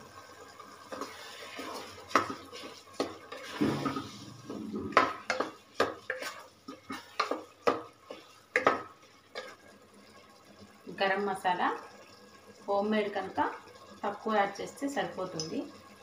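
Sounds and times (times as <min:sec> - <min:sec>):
spatula scraping a pot: 0:00.9 - 0:09.7
spatula knocking against pot: 0:04.9 - 0:06.3, 0:06.9 - 0:07.9, 0:08.5 - 0:09.5.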